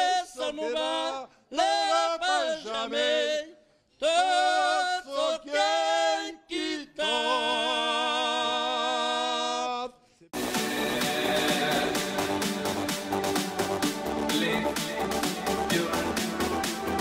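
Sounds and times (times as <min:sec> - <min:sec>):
men singing unaccompanied: 0:00.0 - 0:13.1, 0:14.2 - 0:17.0
electronic music: 0:10.4 - 0:17.0.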